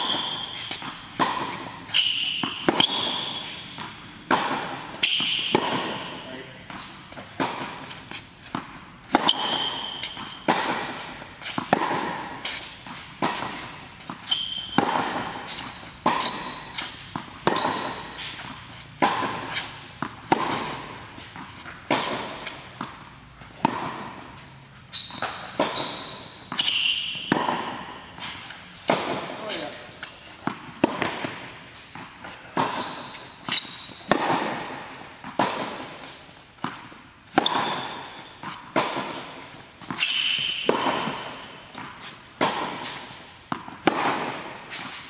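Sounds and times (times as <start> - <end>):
shoe squeaks: 0.0 - 4.0, 4.7 - 8.4, 9.2 - 11.7, 12.4 - 20.0, 23.5 - 28.7, 32.4 - 34.1, 37.4 - 38.6, 39.2 - 43.2
tennis ball hits and bounces: 0.0 - 45.0.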